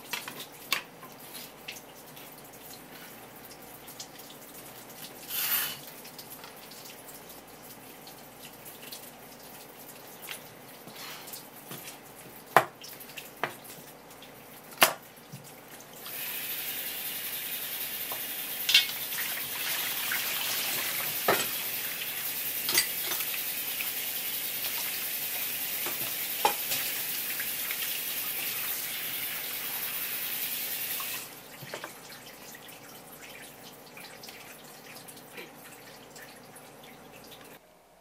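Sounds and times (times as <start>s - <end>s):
tap water spraying on wooden board: 16.0s - 18.7s.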